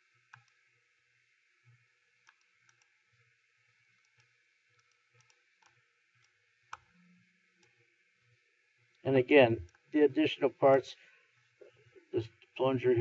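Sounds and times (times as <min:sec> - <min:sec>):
computer mouse clicks: 0:00.3 - 0:00.6, 0:02.2 - 0:02.9, 0:04.0 - 0:07.0.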